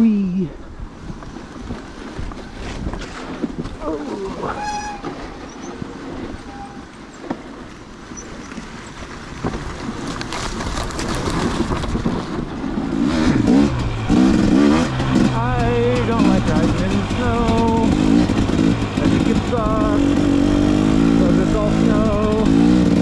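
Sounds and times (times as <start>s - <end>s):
dirt bike engine revving: 11.2s - 23.0s.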